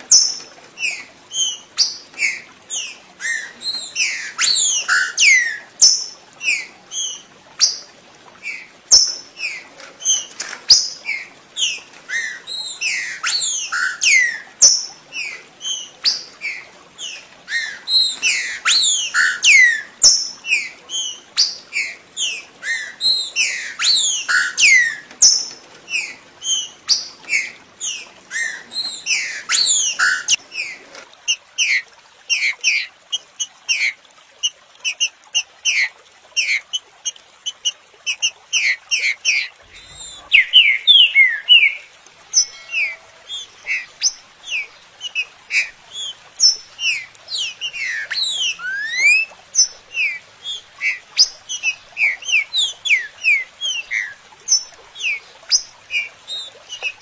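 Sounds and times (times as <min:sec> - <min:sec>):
bird singing whistled notes: 0:39.7 - 0:43.0.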